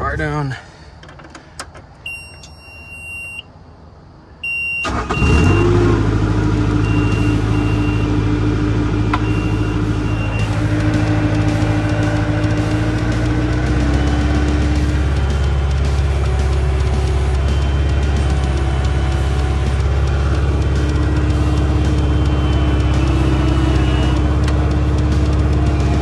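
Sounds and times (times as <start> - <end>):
warning beeps: 2.0 - 3.5, 4.4 - 5.8, 6.8 - 8.2, 9.1 - 24.8
diesel engine starting and idling: 4.4 - 26.0.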